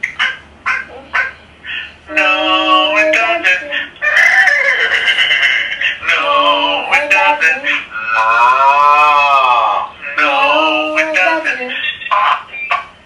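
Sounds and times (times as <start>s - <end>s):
person singing: 2.1s - 3.9s, 6.0s - 12.0s
person imitating horse neigh: 4.0s - 5.2s.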